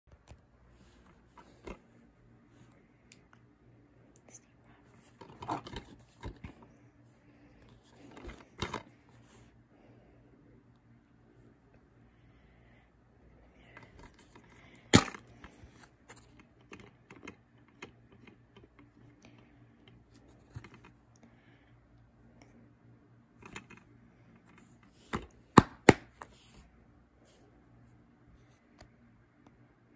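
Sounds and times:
plastic case snapping shut: 15.0s - 15.2s.

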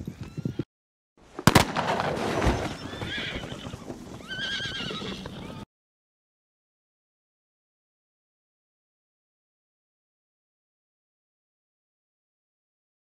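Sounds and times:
sharp gunshot: 1.4s - 2.7s
hoofbeats: 2.0s - 5.7s
horses neighing: 2.2s - 5.7s.

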